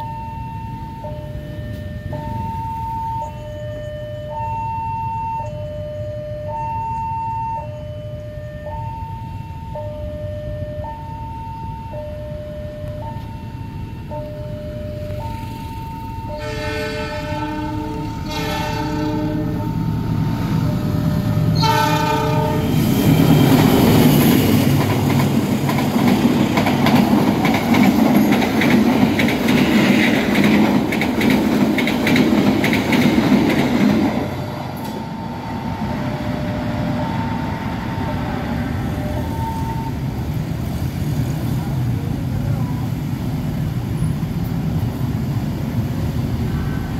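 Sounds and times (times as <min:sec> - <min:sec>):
level crossing alarm chiming: 0:00.0 - 0:24.6, 0:33.2 - 0:40.2
train horn blasts: 0:16.3 - 0:20.9, 0:21.5 - 0:23.1
train wheels clattering over rails: 0:22.7 - 0:35.4.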